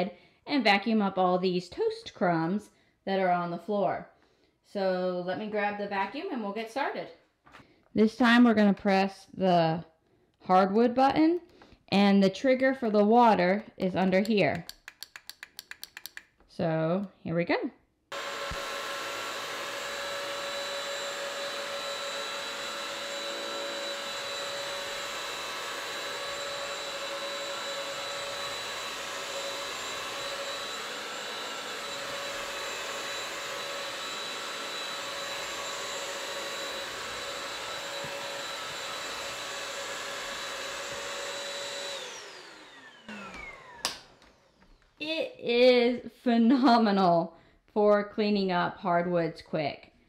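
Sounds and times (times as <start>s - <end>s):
vacuum mop motor whine: 18.1s - 45.0s.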